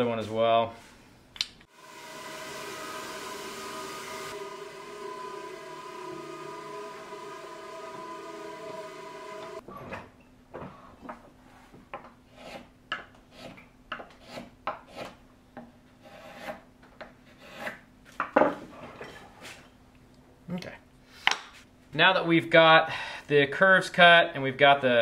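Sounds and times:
machine hum: 1.7s - 9.6s.

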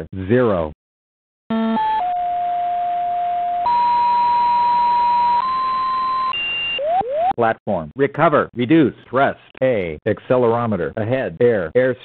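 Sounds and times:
rising electronic beeps: 3.7s - 7.4s.

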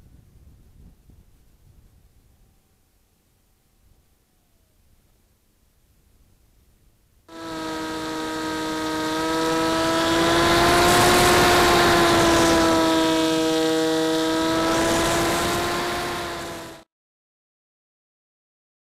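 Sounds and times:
air rushing over airframe: 7.3s - 16.8s
glider motor whine: 7.3s - 16.8s.

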